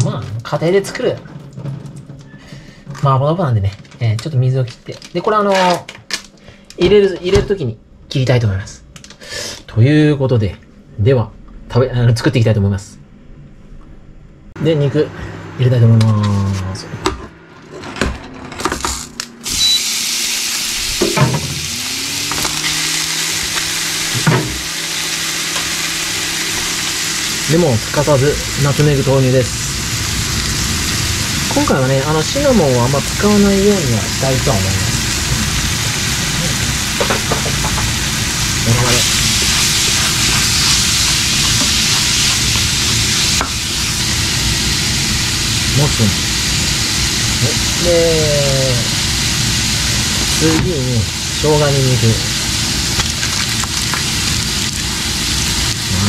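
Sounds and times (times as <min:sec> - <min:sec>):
meat sizzling in a frying pan: 0:19.4 - 0:56.0
spatula stirring in pan: 0:39.1 - 0:43.4.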